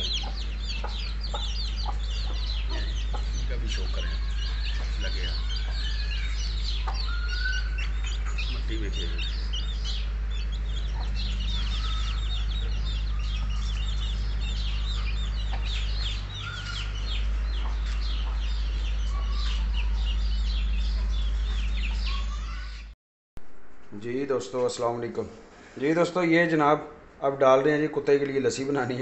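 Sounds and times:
steady low hum: 0:00.0 - 0:22.7
hens calling: 0:00.0 - 0:22.8
chicks peeping: 0:00.0 - 0:22.9.

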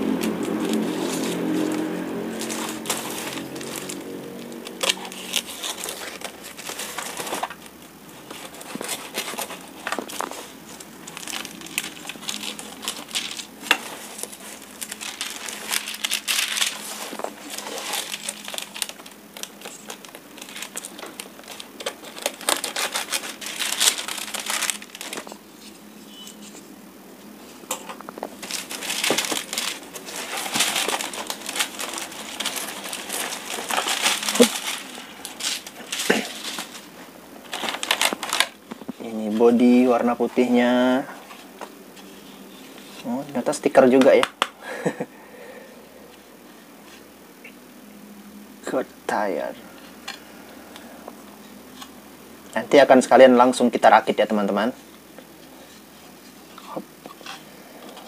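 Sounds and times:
plastic wrapping crinkling: 0:00.0 - 0:26.6, 0:27.3 - 0:45.0
knife slitting plastic wrapping: 0:08.2 - 0:25.4, 0:28.4 - 0:36.9.

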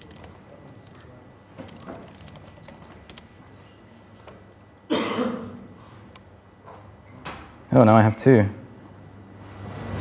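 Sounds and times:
laptop keyboard typing: 0:00.0 - 0:03.5.

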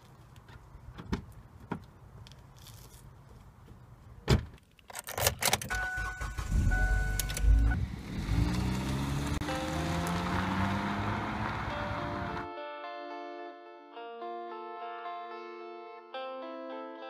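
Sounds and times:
key clicking into ignition: 0:04.9 - 0:07.6
car engine cranking and starting: 0:05.0 - 0:12.0
two-tone warning chime: 0:05.7 - 0:07.8.

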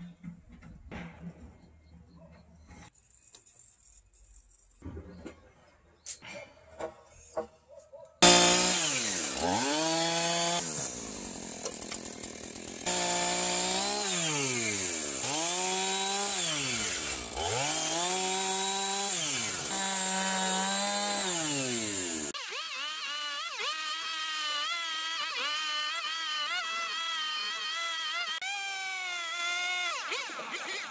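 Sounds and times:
chainsaw cutting timber: 0:08.2 - 0:30.9.

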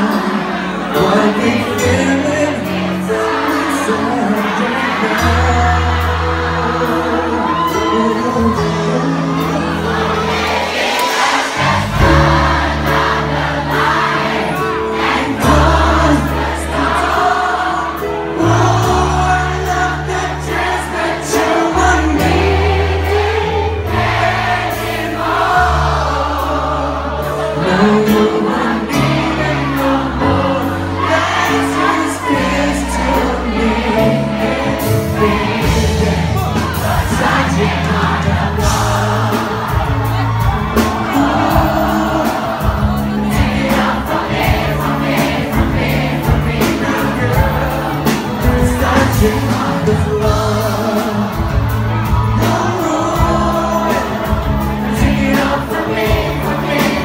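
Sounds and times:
man singing into microphone: 0:00.0 - 0:10.2, 0:15.2 - 0:22.6, 0:26.1 - 0:39.6, 0:46.6 - 0:57.0
audience singing along: 0:00.0 - 0:57.0
loud amplified music with bass: 0:27.2 - 0:57.0.

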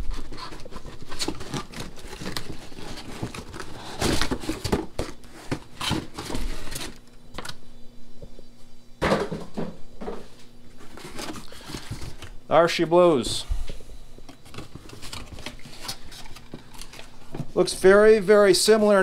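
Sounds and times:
packaging crinkling: 0:00.0 - 0:07.6, 0:10.8 - 0:12.4, 0:14.3 - 0:17.3
faint low hum: 0:00.0 - 0:19.0.

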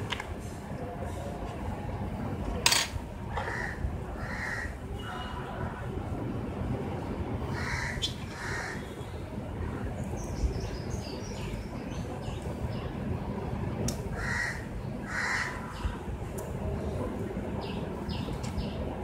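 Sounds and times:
bird cawing: 0:03.4 - 0:04.8, 0:07.5 - 0:08.9, 0:14.2 - 0:15.7.

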